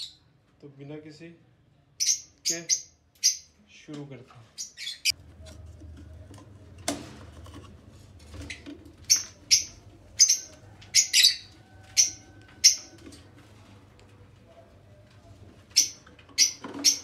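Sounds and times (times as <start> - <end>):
bird squawking: 8.5 - 12.9.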